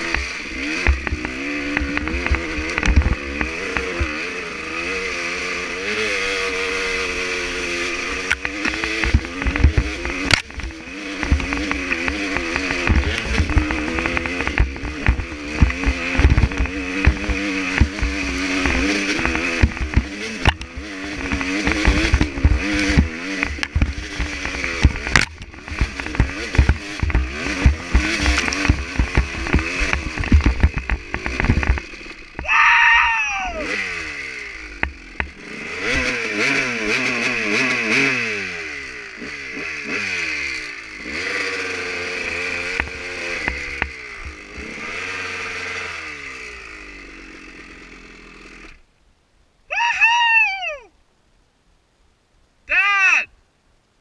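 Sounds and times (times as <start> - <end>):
dirt bike engine revving: 0.0 - 48.9
bike jolting over bumps: 8.4 - 32.8
loud high yell: 32.4 - 33.8, 49.7 - 50.9, 52.7 - 53.3.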